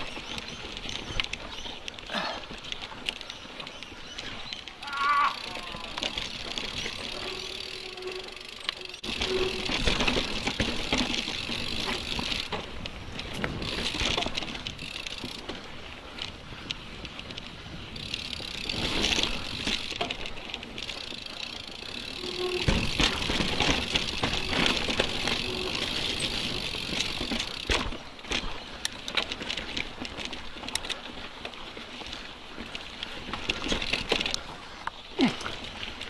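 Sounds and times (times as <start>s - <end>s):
bike tyres and drivetrain: 0.0s - 36.0s
chain and frame rattling: 5.5s - 15.6s, 17.9s - 31.1s.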